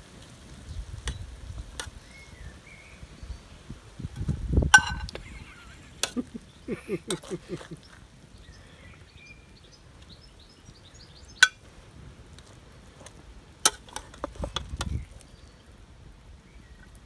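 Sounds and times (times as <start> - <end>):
metal spatula clinking on pan: 4.8 - 5.1.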